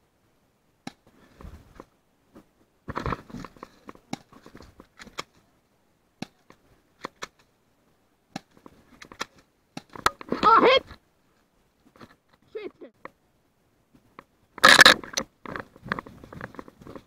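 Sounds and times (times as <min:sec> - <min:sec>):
person shouting: 0:10.4 - 0:10.8.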